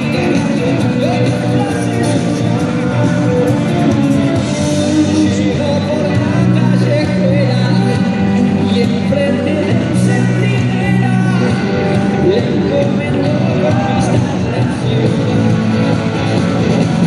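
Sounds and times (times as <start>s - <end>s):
live rock band playing: 0.0s - 17.0s
person singing: 0.0s - 17.0s.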